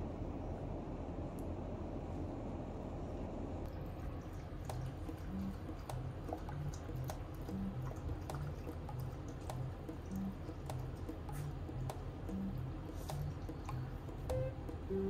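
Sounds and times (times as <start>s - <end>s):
puppy lapping water: 3.7s - 15.0s
soft background music: 4.4s - 15.0s.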